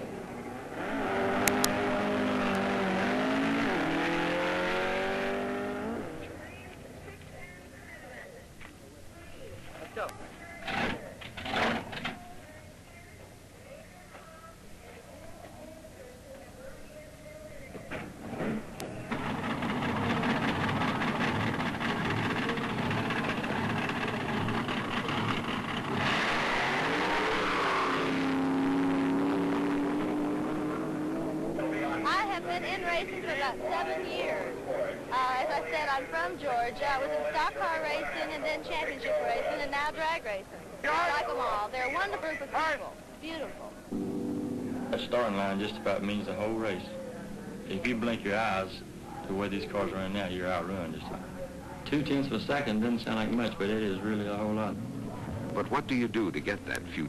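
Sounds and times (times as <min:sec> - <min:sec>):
car engine accelerating hard: 0:00.0 - 0:06.4, 0:18.2 - 0:33.4, 0:43.9 - 0:46.4.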